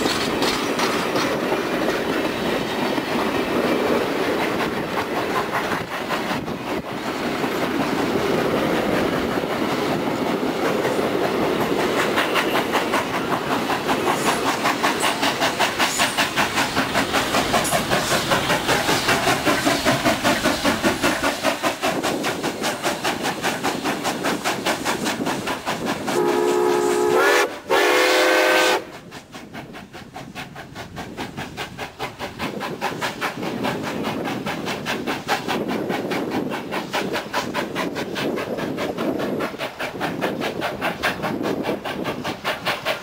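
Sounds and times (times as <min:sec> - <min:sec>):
steam locomotive exhaust beating: 0:00.0 - 0:43.0
steam whistle blasts: 0:26.1 - 0:29.0.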